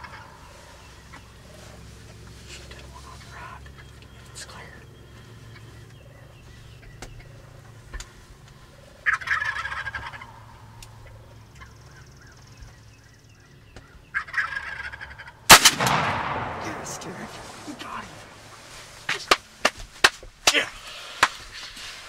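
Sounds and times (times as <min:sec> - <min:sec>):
turkey gobbling: 0:00.0 - 0:01.8, 0:08.7 - 0:12.4, 0:14.1 - 0:15.5
loud shotgun blast: 0:15.5 - 0:18.7.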